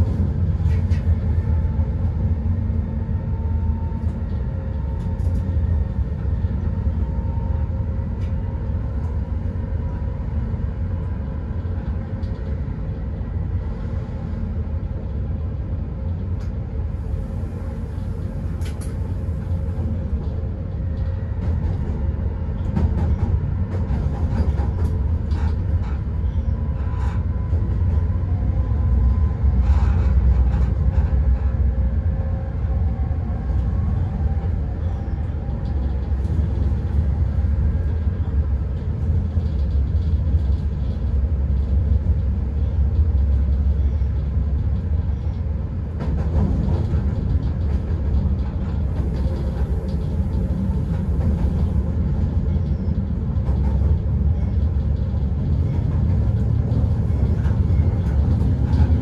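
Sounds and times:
electric locomotive rumbling: 0.0 - 59.0.

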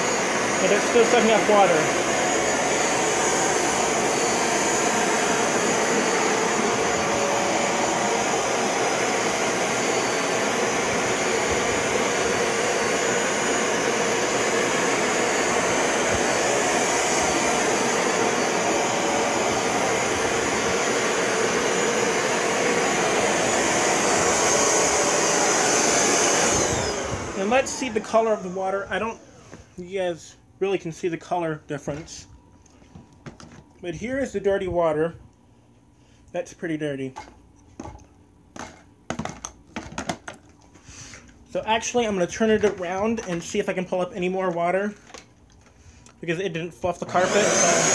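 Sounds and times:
carpet cleaner suction whine: 0.0 - 32.2, 40.9 - 45.2, 46.2 - 47.9.

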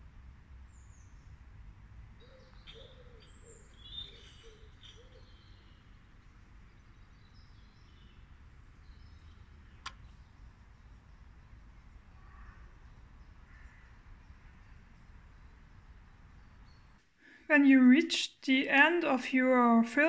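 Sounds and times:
short low bird calls: 2.2 - 5.8, 12.2 - 14.7
small birds chirping: 2.2 - 17.0.

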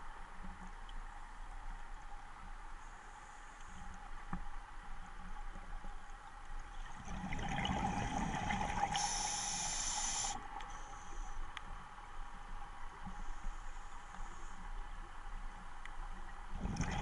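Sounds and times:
exhaled bubbles underwater: 6.9 - 9.6, 16.6 - 17.0
high hiss: 8.9 - 10.4.

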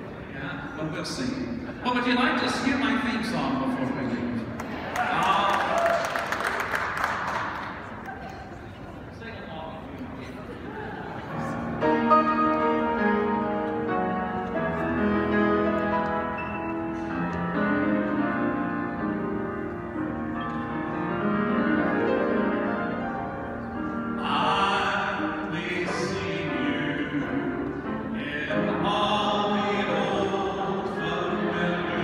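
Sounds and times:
grand piano accompaniment: 0.0 - 8.6, 10.6 - 32.0
mixed choir singing: 24.2 - 32.0.

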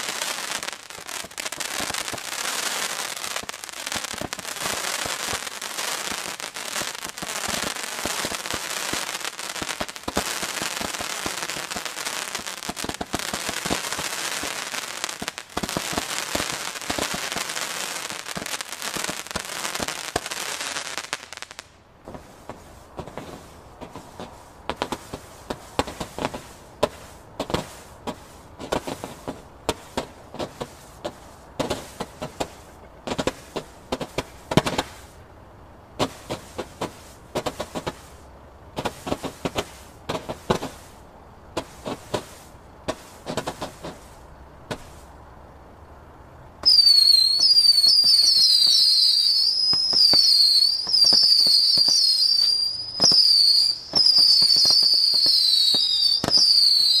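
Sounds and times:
shrill firework whistles: 0.0 - 21.6, 46.6 - 57.0
firework pops and bangs: 0.0 - 35.2, 36.0 - 38.1, 38.7 - 45.1, 46.6 - 57.0.

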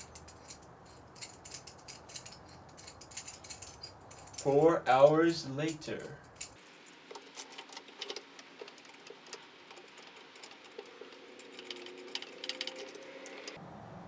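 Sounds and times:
faint rapid clicking of small parts: 6.0 - 13.6.

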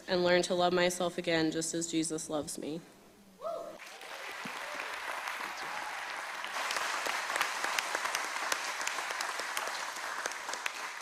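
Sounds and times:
congregation applauding: 3.8 - 11.0.

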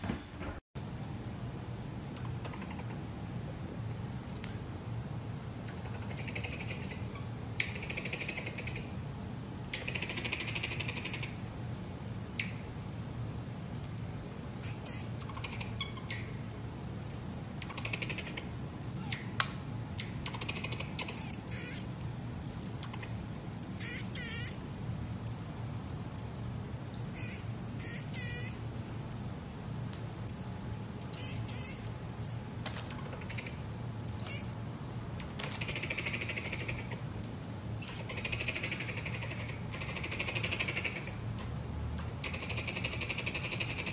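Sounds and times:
marmoset chirps and squeaks: 5.8 - 11.4, 14.0 - 19.4, 20.0 - 26.4, 27.0 - 32.4, 33.1 - 34.6, 35.2 - 43.9.

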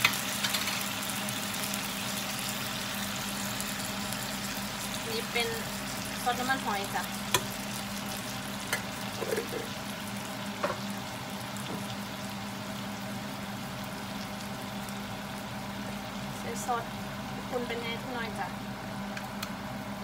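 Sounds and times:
metal utensils clicking on pan: 0.0 - 0.8
food sizzling in a frying pan: 0.0 - 20.0.

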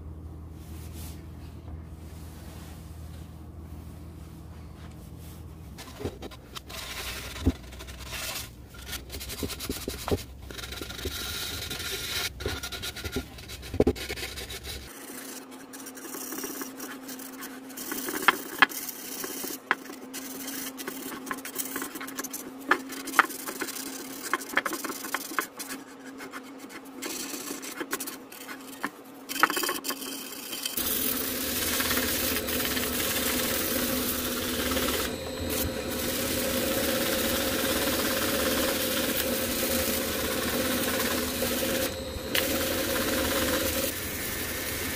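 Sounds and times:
hand tool scraping wood: 5.8 - 44.0
sharp scratches: 6.3 - 44.0
rotary sanding tool running: 10.5 - 22.0, 30.7 - 44.9.

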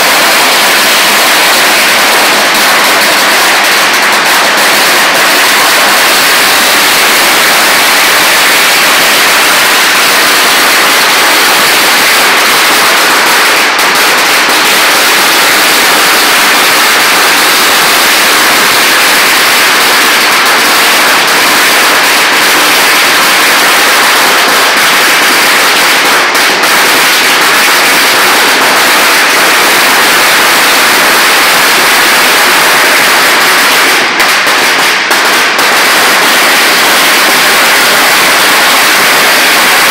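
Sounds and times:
firecracker chain crackling: 0.0 - 39.9.

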